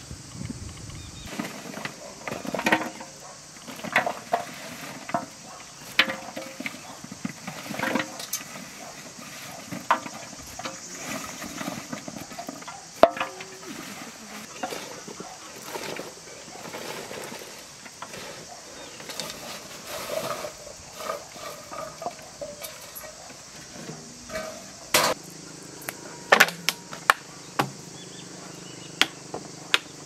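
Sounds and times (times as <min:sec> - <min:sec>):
vegetables rustling: 0:06.3 - 0:25.2.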